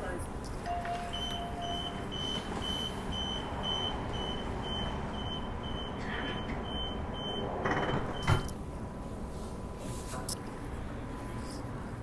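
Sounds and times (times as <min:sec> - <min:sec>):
low hum of train: 0:00.0 - 0:12.0
train door warning beeps: 0:00.6 - 0:08.6.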